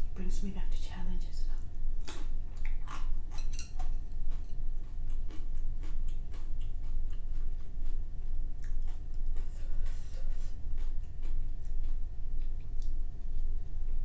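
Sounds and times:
steady low hum: 0.0s - 14.0s
person chewing crunchy food: 2.0s - 14.0s.

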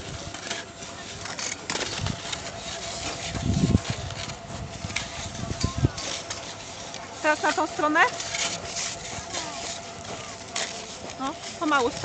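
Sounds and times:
skis scraping over snow: 0.0s - 12.0s
wind rumbling on microphone: 3.2s - 6.0s.

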